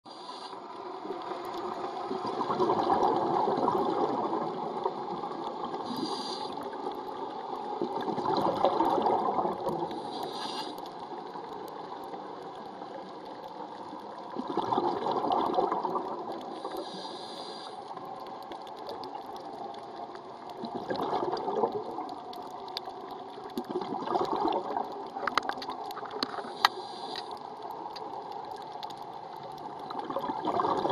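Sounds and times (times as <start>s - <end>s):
regulator inhale hiss: 0.1s - 0.7s, 5.8s - 6.8s, 9.9s - 11.0s, 16.5s - 18.0s, 26.3s - 27.5s
gurgling exhaled bubbles: 1.2s - 7.0s, 7.7s - 10.2s, 14.1s - 17.1s, 18.6s - 26.7s, 27.9s - 30.9s.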